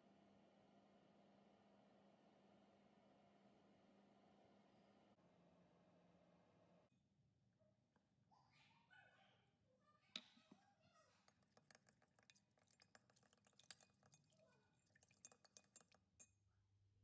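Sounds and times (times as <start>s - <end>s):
metal spoon clinking on glass jug: 11.2s - 16.4s.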